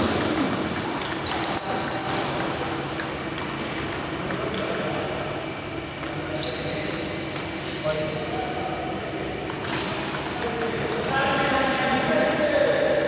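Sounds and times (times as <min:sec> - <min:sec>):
fan humming: 0:00.0 - 0:13.0.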